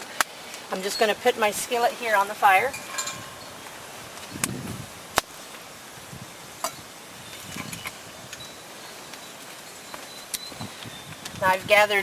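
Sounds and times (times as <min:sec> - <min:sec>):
burning wood popping: 0:02.3 - 0:11.6.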